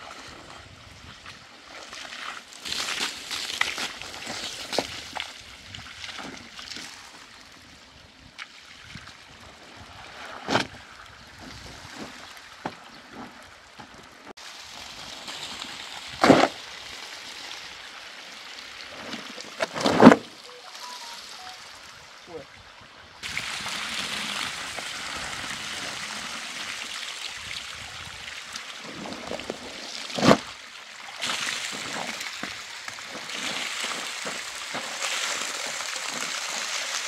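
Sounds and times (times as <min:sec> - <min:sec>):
water sloshing and trickling: 0:00.0 - 0:21.9, 0:23.2 - 0:37.0.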